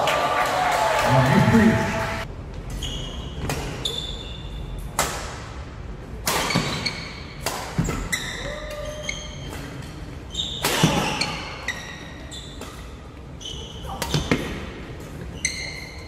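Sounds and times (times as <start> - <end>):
sneakers squeaking on wooden court: 2.7 - 4.7, 6.4 - 16.0.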